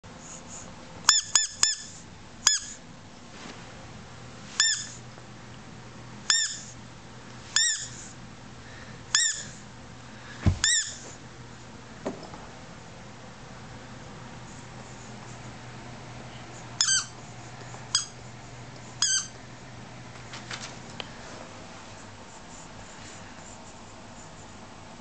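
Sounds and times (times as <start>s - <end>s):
soft low thump: 10.4s - 10.7s
high-pitched squeaks: 10.6s - 11.0s.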